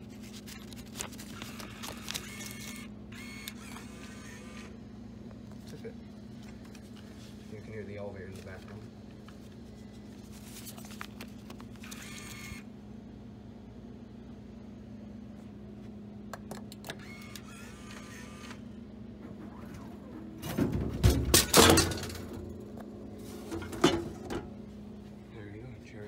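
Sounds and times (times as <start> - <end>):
vending machine mechanism whirring: 0.0 - 9.3, 11.1 - 12.7, 16.4 - 25.0
steady low hum: 0.0 - 26.0
bottle clunking into bin: 20.4 - 22.4.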